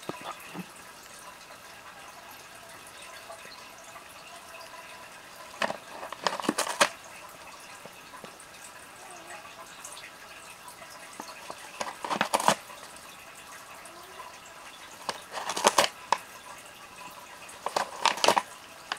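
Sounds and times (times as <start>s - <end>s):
paper crinkling: 5.5s - 7.0s, 11.2s - 12.9s, 14.8s - 16.4s, 17.0s - 18.9s
cat tearing paper: 5.6s - 7.0s, 11.2s - 12.8s, 15.0s - 16.3s, 17.5s - 18.9s.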